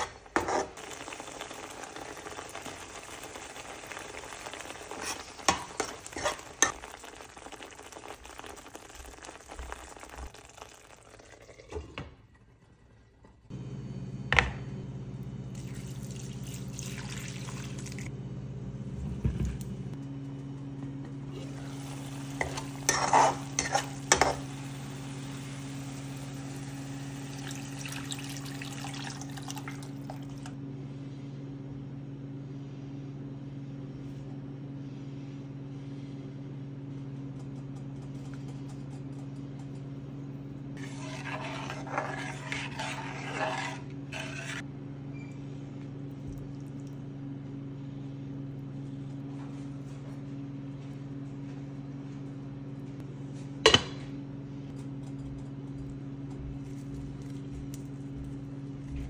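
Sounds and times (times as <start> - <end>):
spoon stirring and scraping pan: 0.0 - 1.1, 2.2 - 8.8, 21.4 - 24.6, 40.8 - 44.6
liquid pouring into pot: 0.8 - 13.0, 15.6 - 18.1, 25.9 - 30.6
steady low hum: 29.8 - 59.0.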